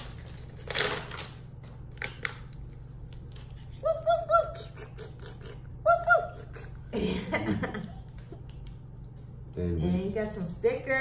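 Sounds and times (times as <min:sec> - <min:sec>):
plastic wrapping rustle: 0:00.0 - 0:02.6.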